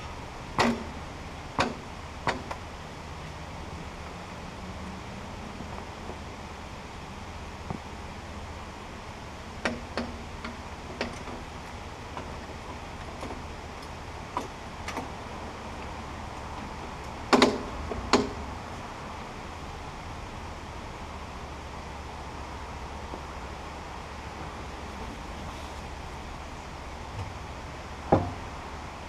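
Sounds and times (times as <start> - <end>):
metal frame clunking and knocking: 0.6 - 1.0, 17.0 - 18.4, 28.0 - 28.5.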